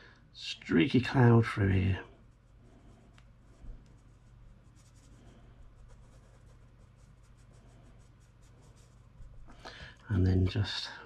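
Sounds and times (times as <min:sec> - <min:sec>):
low steady hum: 0:00.0 - 0:11.0
sponge rubbing on paper: 0:01.2 - 0:09.5.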